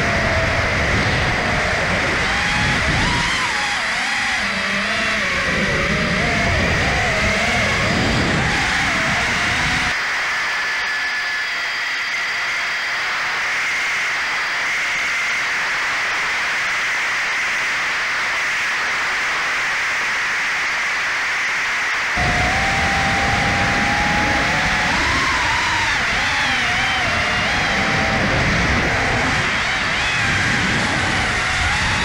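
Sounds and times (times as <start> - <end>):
model plane motor whine: 0.0 - 32.0
low wavering motor rumble: 22.2 - 32.0.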